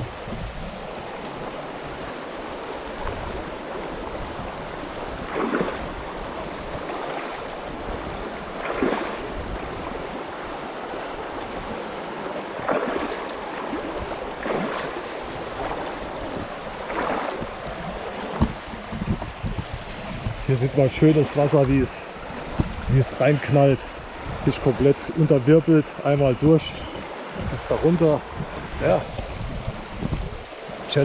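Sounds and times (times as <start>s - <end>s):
river rushing over stones: 0.0s - 31.0s
feet splashing in water: 4.6s - 18.9s.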